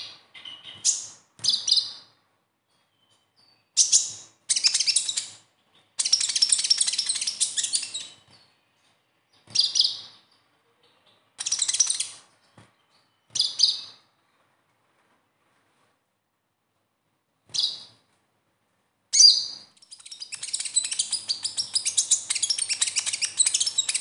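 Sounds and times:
sunbird scratchy chattering song: 3.8s - 8.3s, 11.4s - 12.3s, 19.2s - 24.0s.

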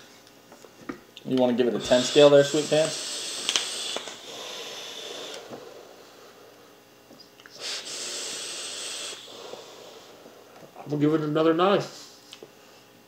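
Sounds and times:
vape airflow hissing: 1.8s - 6.2s, 7.5s - 10.5s
breathy exhale: 1.9s - 6.7s, 7.5s - 10.5s.

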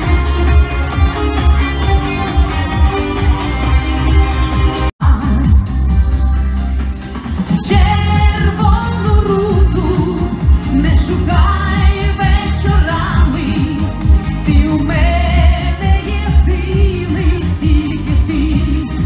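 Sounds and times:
amplified pop music with bass beat: 0.0s - 19.0s
woman singing into microphone: 5.0s - 5.8s, 7.6s - 19.0s.

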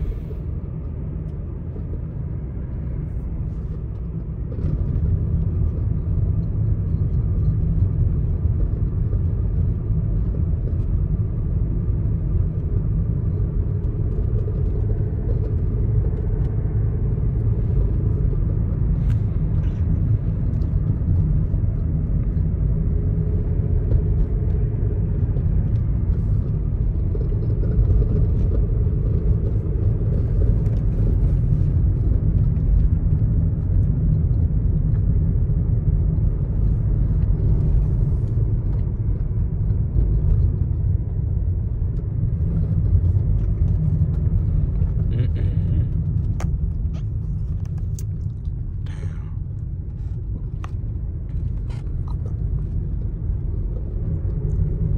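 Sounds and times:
car engine rumble: 0.0s - 54.9s
road noise: 0.0s - 54.9s.

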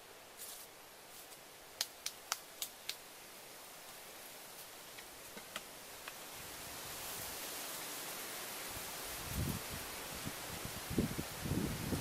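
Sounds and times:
faint outdoor rustle: 0.0s - 12.0s.

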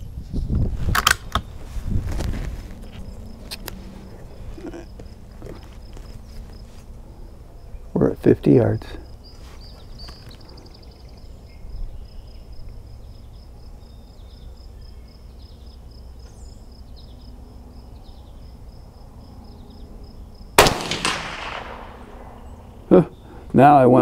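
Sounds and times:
pulsing insect chirp: 2.7s - 20.8s, 21.4s - 23.5s
rifle shot: 20.6s - 22.5s.

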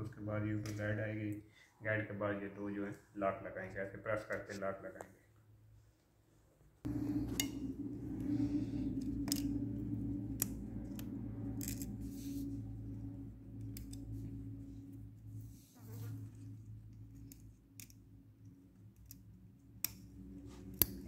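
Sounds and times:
low machine hum: 6.9s - 21.0s
metallic clicks of steel parts: 8.9s - 12.1s, 13.6s - 14.2s, 17.1s - 18.0s, 18.8s - 21.0s.

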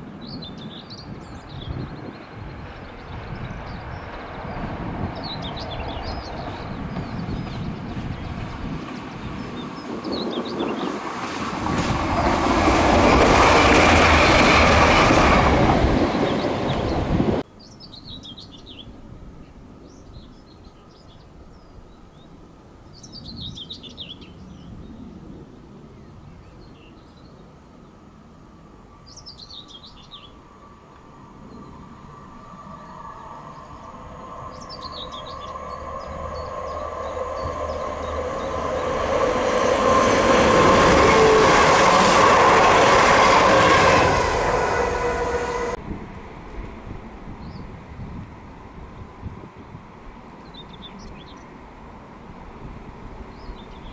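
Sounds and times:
songbird singing: 0.0s - 28.0s, 28.9s - 45.8s, 47.4s - 47.7s, 50.3s - 51.6s, 53.3s - 53.9s
diesel train passing: 1.0s - 17.4s, 29.9s - 53.9s
train engine approaching: 2.3s - 17.4s, 30.4s - 50.4s.

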